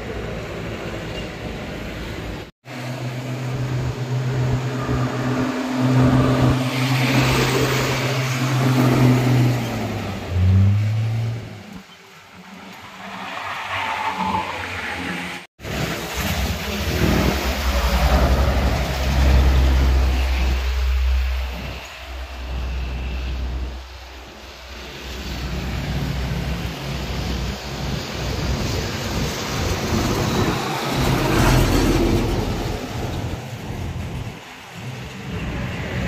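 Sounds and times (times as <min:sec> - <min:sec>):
truck diesel engine and tyres: 0:00.0 - 0:36.0
motorcycles passing: 0:02.8 - 0:15.5.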